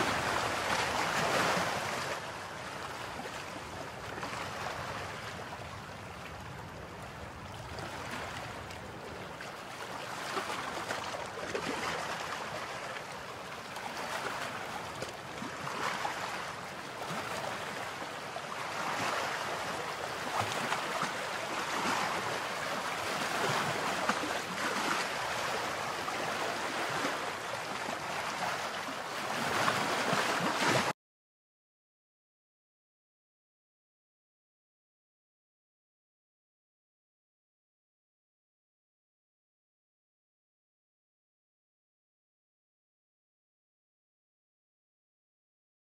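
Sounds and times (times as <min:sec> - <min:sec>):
waves breaking on sandy beach: 0:00.0 - 0:30.9.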